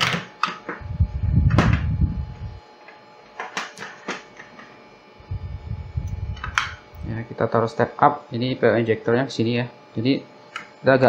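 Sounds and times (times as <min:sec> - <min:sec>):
low rumble: 0:00.8 - 0:02.6, 0:05.2 - 0:07.2.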